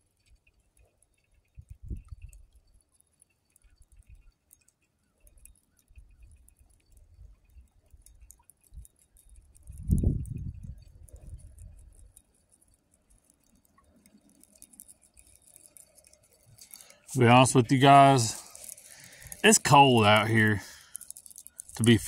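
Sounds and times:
fishing reel ticking: 0.0s - 22.0s
wind buffeting microphone: 1.6s - 2.5s, 9.6s - 12.0s.

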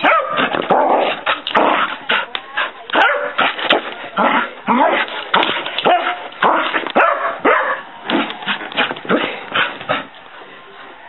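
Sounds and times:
dog barking excitedly: 0.0s - 1.8s, 2.9s - 7.9s.

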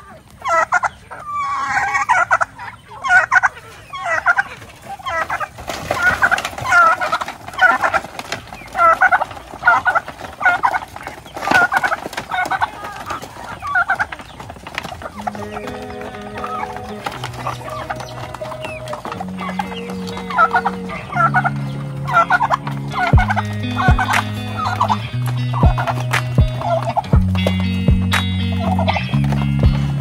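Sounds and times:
turkey gobbling: 0.0s - 29.8s
hens clucking: 0.0s - 30.0s.

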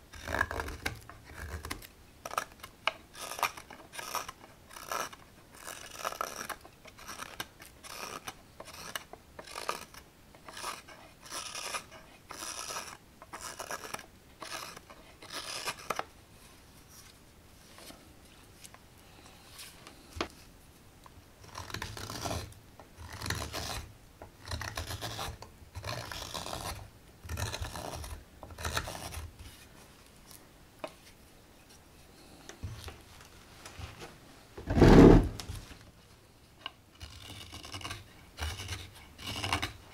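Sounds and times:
knife scraping wood: 0.1s - 16.0s, 21.4s - 29.7s, 37.0s - 39.9s.

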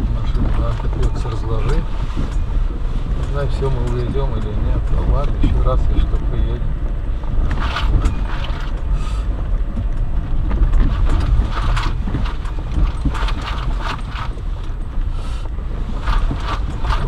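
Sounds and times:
car engine and tyres rumbling: 0.0s - 17.0s
car body knocks and rattles: 9.5s - 15.0s, 15.8s - 17.0s.

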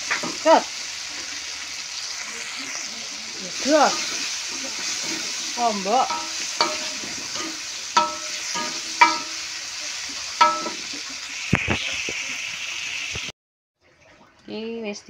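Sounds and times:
vegetables sizzling in hot oil: 0.0s - 13.3s
metal spatula clinking on wok: 6.1s - 9.5s, 10.4s - 11.0s.

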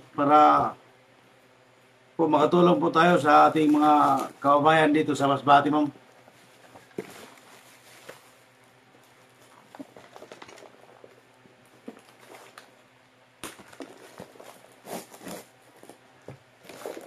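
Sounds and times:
cardboard and plastic packaging rustling: 3.5s - 4.6s, 6.2s - 12.8s, 13.4s - 17.0s.

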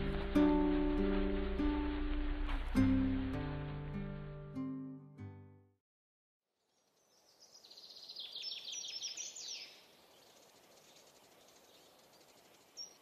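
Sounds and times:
steady hiss: 0.0s - 4.7s.

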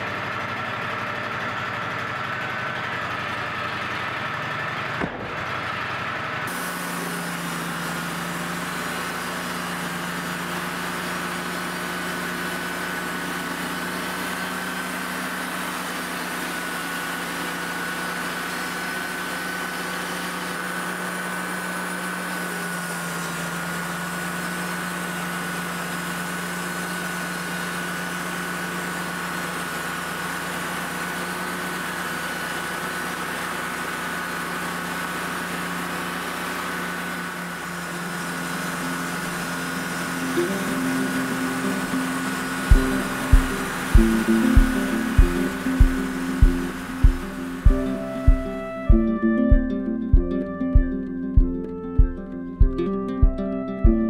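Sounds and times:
sawmill engine hum: 0.0s - 54.0s
band blade high whine: 37.4s - 54.0s.

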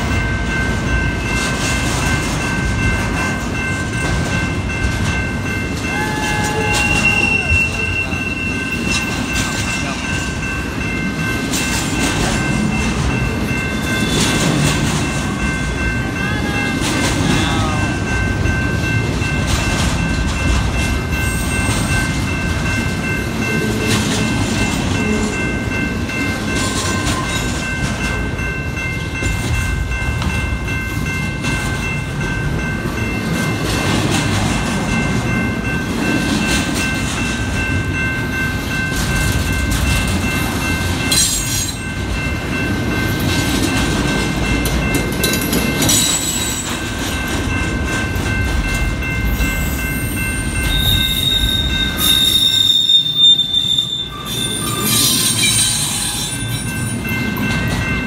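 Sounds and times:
crossing bell ringing: 0.0s - 58.0s
freight train rumble: 0.0s - 58.0s
wheels clattering over rail joints: 6.7s - 16.0s.

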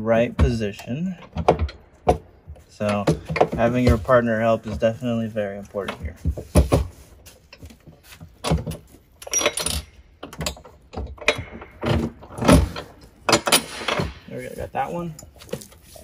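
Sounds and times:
metal frame clinking and rattling: 8.3s - 15.9s.

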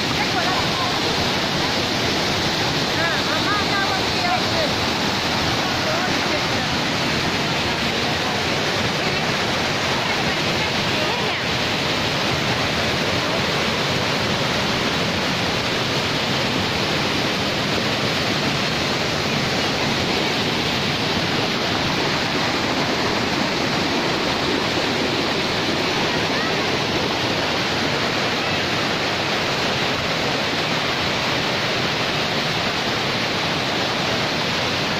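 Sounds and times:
waterfall rushing over rocks: 0.0s - 34.9s.

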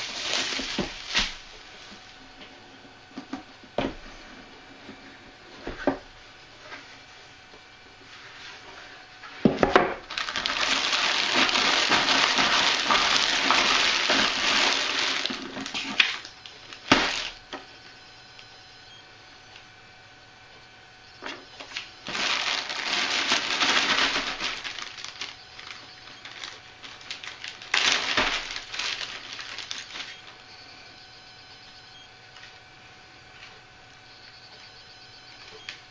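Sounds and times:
plastic bag crinkling: 0.0s - 1.9s, 10.0s - 17.4s, 21.6s - 30.4s.

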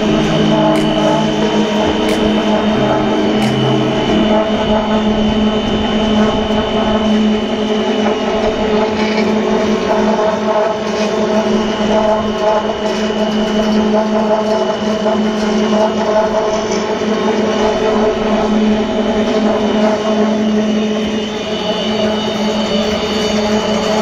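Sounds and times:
wire rolling machine whining: 0.0s - 24.0s.

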